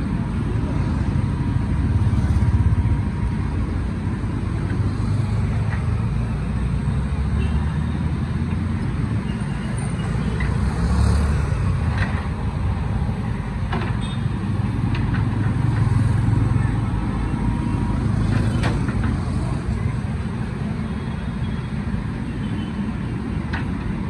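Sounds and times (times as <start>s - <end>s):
diesel engine running: 0.0s - 7.2s.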